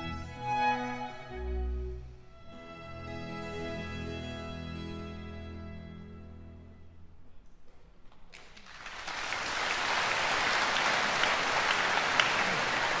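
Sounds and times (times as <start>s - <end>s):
string ensemble with harpsichord: 0.0s - 6.9s
audience applauding: 8.3s - 13.0s.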